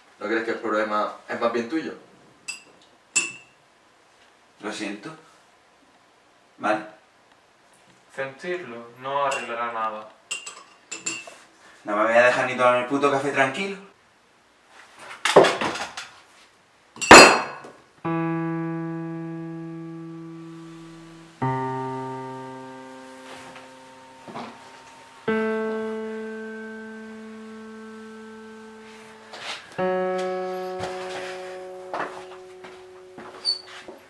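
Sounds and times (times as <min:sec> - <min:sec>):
slow keyboard chords: 0:18.0 - 0:34.0.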